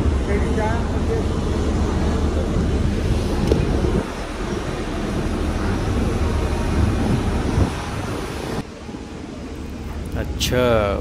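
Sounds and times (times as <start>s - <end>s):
heavy machinery rumbling: 0.0s - 8.6s.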